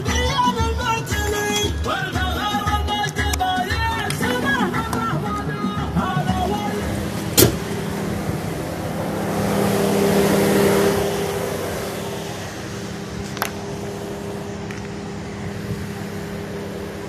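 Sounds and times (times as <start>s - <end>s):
car engine idling: 0.0s - 17.0s
rushing noise: 3.6s - 17.0s.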